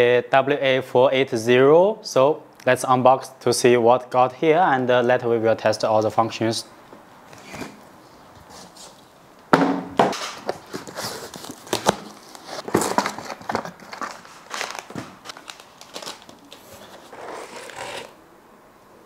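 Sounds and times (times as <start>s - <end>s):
cardboard and foam rustling: 10.1s - 18.2s
plastic bags crinkling: 10.4s - 18.2s.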